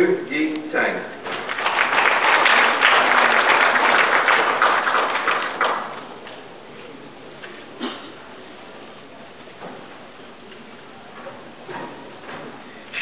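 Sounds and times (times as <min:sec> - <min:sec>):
audience applauding: 0:01.3 - 0:06.4.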